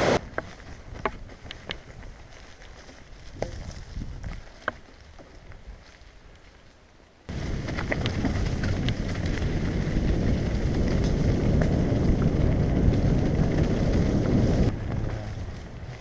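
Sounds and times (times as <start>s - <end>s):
bike tyres rumbling: 0.0s - 16.0s
wind buffeting microphone: 3.2s - 4.4s, 7.3s - 16.0s.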